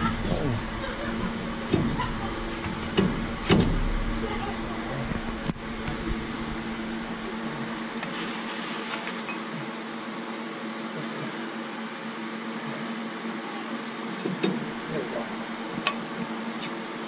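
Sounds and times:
brake parts clicks and knocks: 0.0s - 4.1s
steady mechanical hum: 0.0s - 17.0s.

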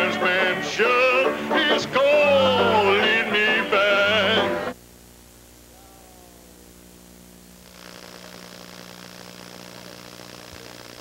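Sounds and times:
videotape hiss: 0.0s - 11.0s
low electrical hum: 3.8s - 11.0s.

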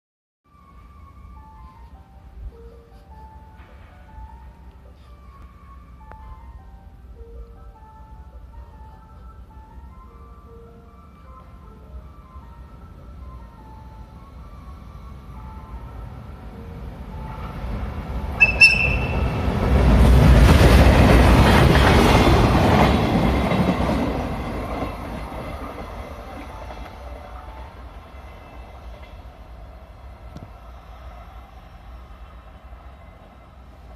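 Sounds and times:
train rumbling and rattling past: 0.5s - 33.9s
train whistle toot: 18.4s - 19.5s.

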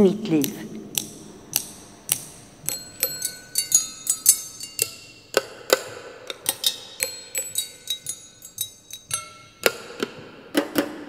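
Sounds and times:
rod tapping small objects: 0.4s - 10.0s
ringing glass clinks: 1.1s - 9.7s.

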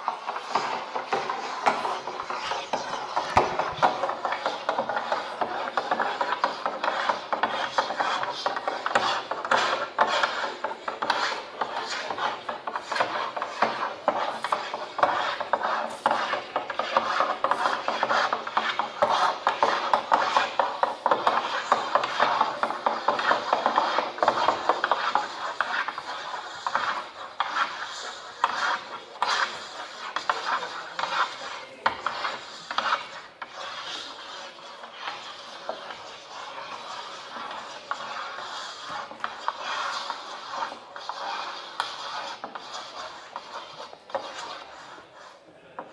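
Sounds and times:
drawing tools scratching paper: 0.0s - 45.9s.

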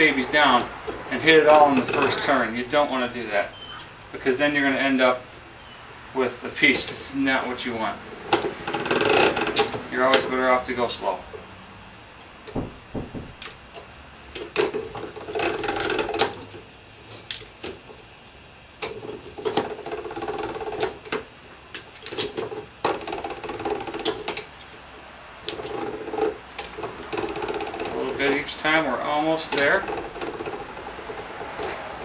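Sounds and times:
clicks and knocks: 12.4s - 15.1s
slip roll machine whirring: 25.5s - 32.0s.

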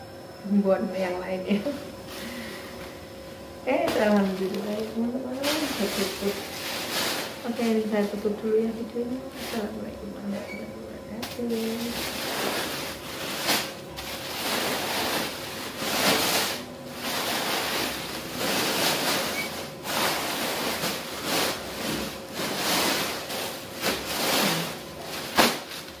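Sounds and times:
plastic bag rustling: 3.7s - 9.9s, 11.2s - 26.0s.

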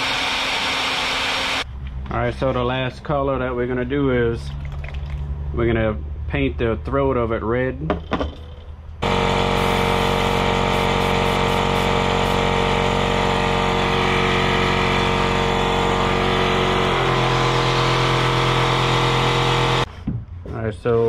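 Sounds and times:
air compressor running: 0.0s - 1.6s, 9.0s - 19.9s.

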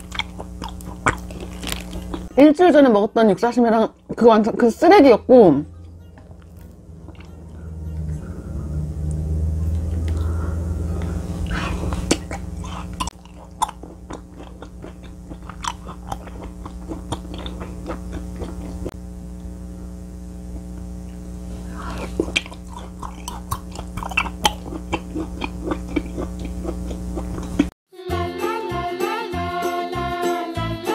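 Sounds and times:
person chewing: 0.0s - 2.4s, 6.2s - 19.0s, 21.4s - 27.7s
steady low hum: 0.0s - 27.8s.

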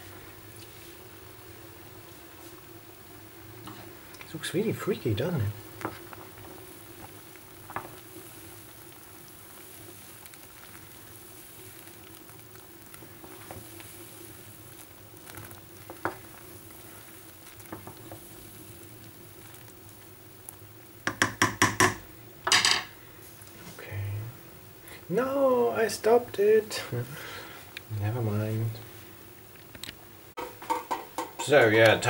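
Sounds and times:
water boiling in a pot: 0.0s - 32.0s
wooden spoon knocking a pot: 21.0s - 22.9s, 30.4s - 31.6s.

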